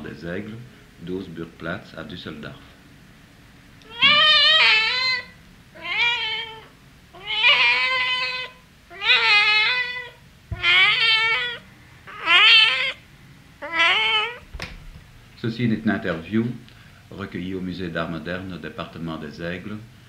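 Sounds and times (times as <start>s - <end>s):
cat meowing: 3.8s - 13.0s, 13.6s - 14.5s.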